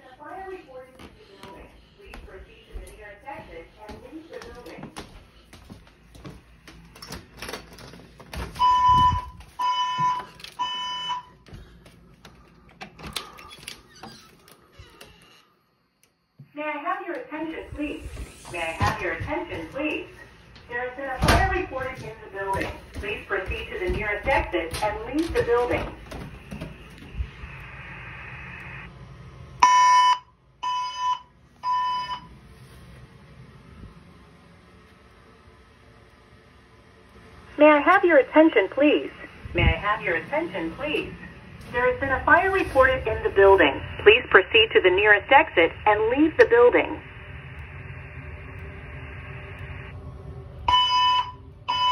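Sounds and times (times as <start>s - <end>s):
fire alarm beeping: 8.5s - 11.7s, 29.6s - 32.4s, 50.7s - 51.9s.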